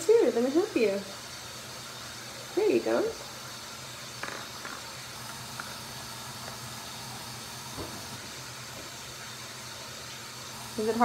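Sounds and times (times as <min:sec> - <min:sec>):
background hiss: 0:00.0 - 0:11.0.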